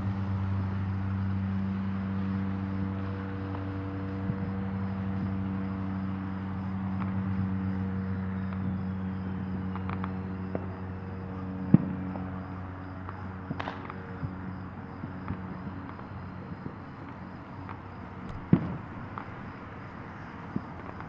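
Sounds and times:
low engine hum: 0:00.0 - 0:21.0
crickets chirping: 0:00.1 - 0:21.0
distant fireworks bangs: 0:06.9 - 0:21.0.

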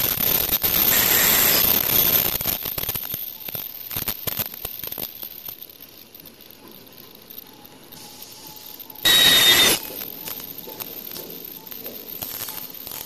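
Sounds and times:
machine hissing: 0:00.0 - 0:05.6, 0:07.0 - 0:13.0
faint machine whine: 0:00.0 - 0:13.0.

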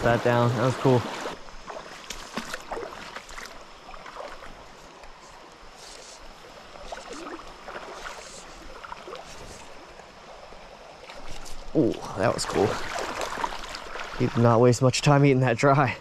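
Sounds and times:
stream running over riffle: 0:00.0 - 0:15.9.

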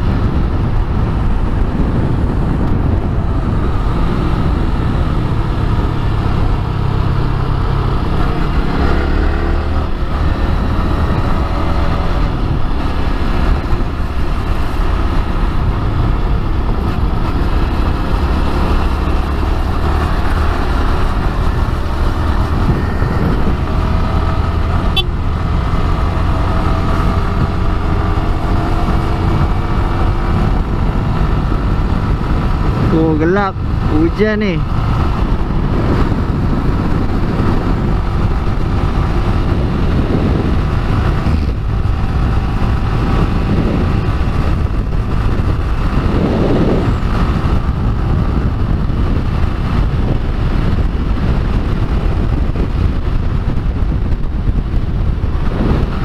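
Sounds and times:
motorcycle engine accelerating: 0:00.0 - 0:56.0
wind and road noise: 0:00.0 - 0:56.0.

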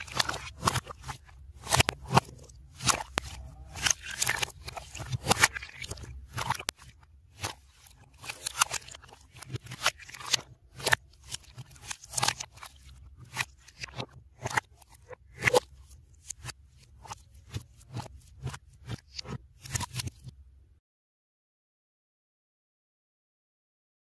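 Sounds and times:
slime squished by hand: 0:00.0 - 0:06.8.

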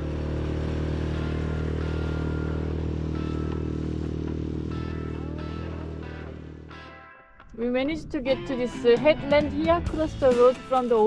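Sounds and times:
outboard motor running: 0:00.0 - 0:06.8.

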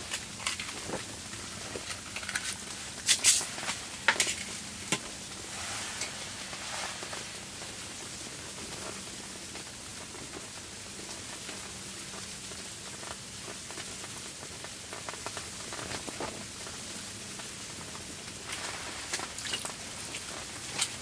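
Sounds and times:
snow pattering: 0:00.0 - 0:21.0.

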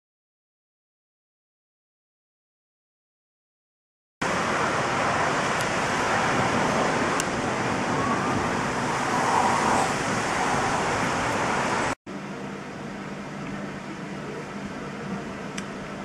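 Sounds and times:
heavy rain and hail: 0:04.2 - 0:12.0
low steady hum: 0:04.2 - 0:16.0.

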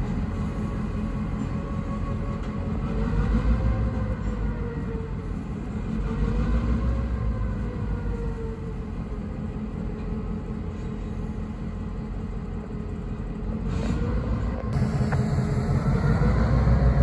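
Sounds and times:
diesel locomotive rumble: 0:00.0 - 0:17.0
faint wavering tones: 0:14.8 - 0:17.0.

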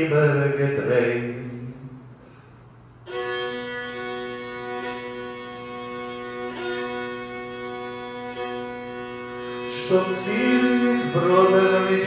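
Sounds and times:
solo violin folk melody: 0:03.0 - 0:12.0.

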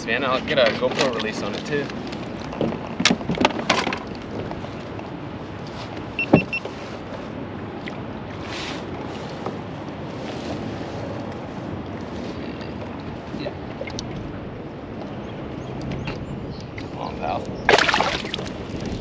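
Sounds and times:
water noise: 0:00.0 - 0:19.0
wind: 0:00.0 - 0:19.0
high electronic beeps: 0:06.2 - 0:06.6.

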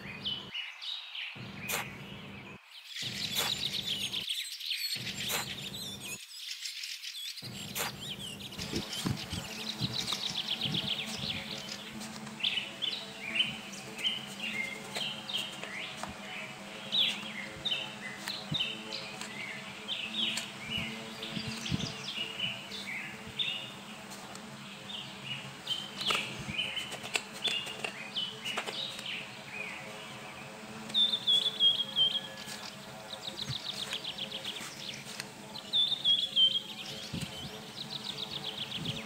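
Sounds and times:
birds chirping: 0:00.0 - 0:39.0
low steady hum: 0:01.4 - 0:04.3
trowel digging in damp sand: 0:03.2 - 0:03.7, 0:05.2 - 0:05.6, 0:07.7 - 0:08.1.

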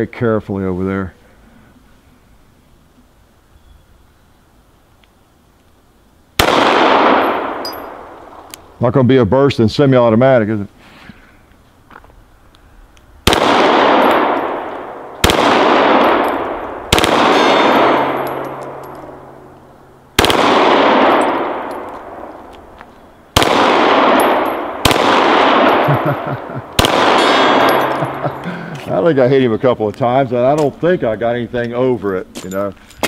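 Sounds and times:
pistol firing bursts: 0:06.4 - 0:08.2, 0:13.2 - 0:22.5, 0:23.3 - 0:26.2, 0:26.8 - 0:28.3.

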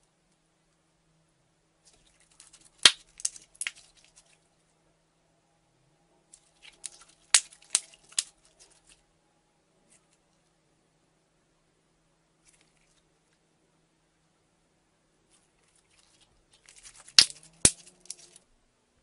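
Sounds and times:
slime crackling and popping: 0:02.1 - 0:04.2, 0:06.4 - 0:08.9, 0:16.0 - 0:18.4.

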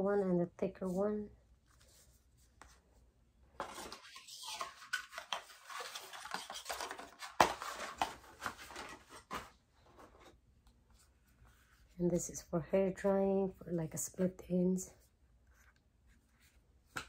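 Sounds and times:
packaging rustling: 0:03.6 - 0:10.3.

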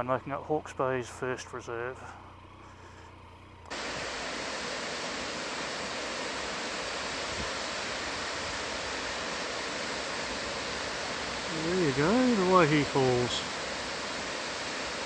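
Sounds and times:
waterfall rushing: 0:03.7 - 0:15.0.

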